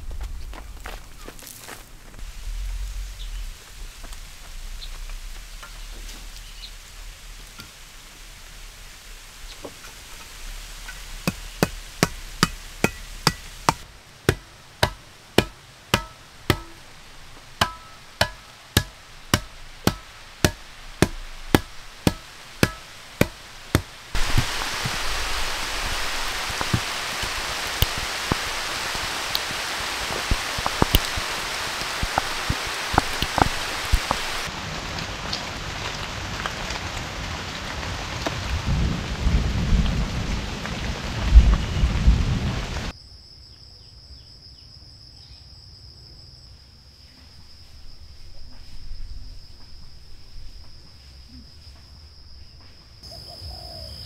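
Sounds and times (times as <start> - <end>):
rain falling: 0.0 - 42.9
sharp ringing strikes: 12.0 - 16.8, 17.6 - 23.9.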